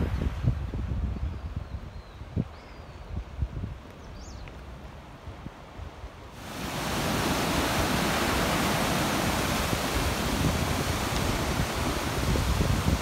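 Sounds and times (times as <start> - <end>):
heavy surf breaking against rocks: 6.3 - 13.0.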